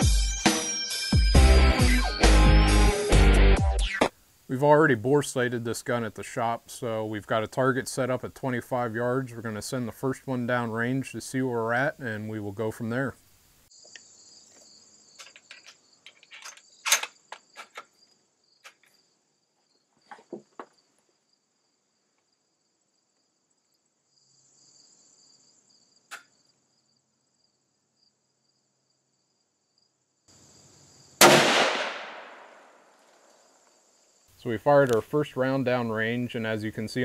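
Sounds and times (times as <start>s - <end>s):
insects chirping: 12.8s - 31.3s, 31.9s - 37.0s
rifle bolt clicks and knocks: 15.2s - 17.9s
loud rifle shot: 31.2s - 32.8s.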